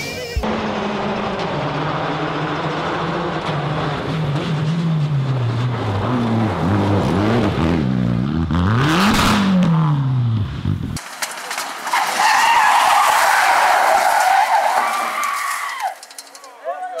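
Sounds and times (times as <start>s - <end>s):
rally car engine revving: 0.4s - 11.0s
car crashing into bushes: 11.0s - 16.5s.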